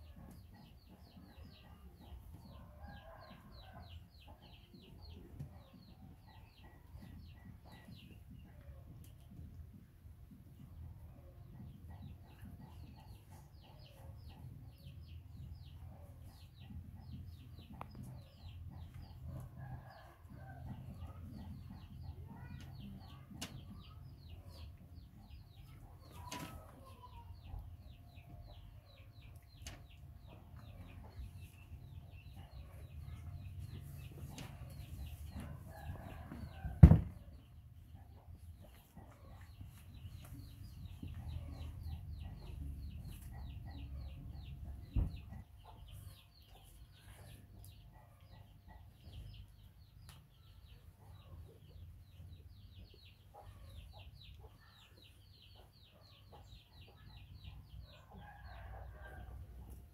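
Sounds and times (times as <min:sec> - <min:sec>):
chickens clucking: 0:00.0 - 0:59.9
chicks peeping: 0:00.0 - 0:59.9
loud thump: 0:36.8 - 0:37.2.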